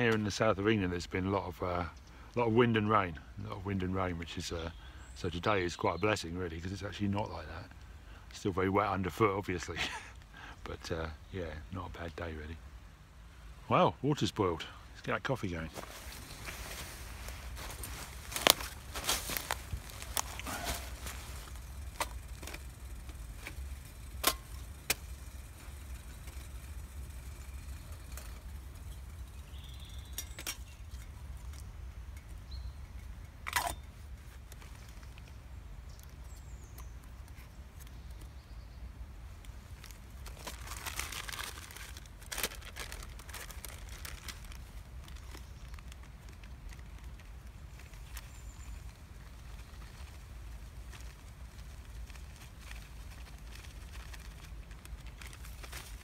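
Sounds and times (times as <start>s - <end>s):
paper or bag rustling: 15.8s - 30.0s, 39.8s - 48.3s, 49.4s - 56.0s.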